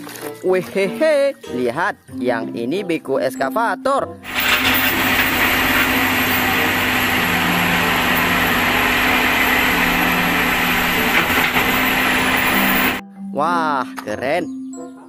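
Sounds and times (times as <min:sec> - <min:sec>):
excavator diesel engine running: 0:04.2 - 0:13.0.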